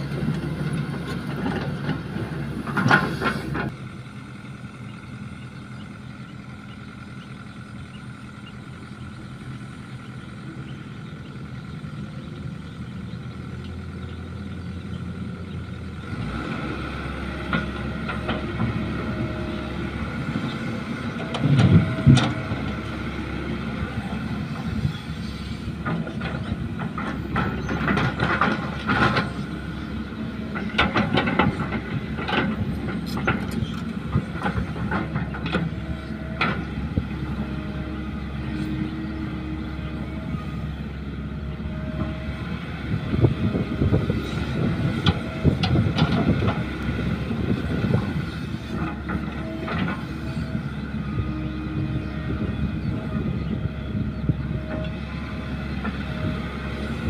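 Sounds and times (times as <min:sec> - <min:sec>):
bucket and tracks clanking: 0:00.0 - 0:03.7, 0:25.6 - 0:37.9
excavator diesel engine under load: 0:00.0 - 0:57.0.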